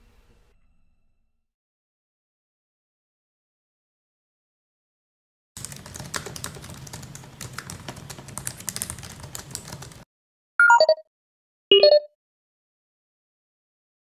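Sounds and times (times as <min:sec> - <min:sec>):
fast typing on laptop keyboard: 0:05.6 - 0:10.0.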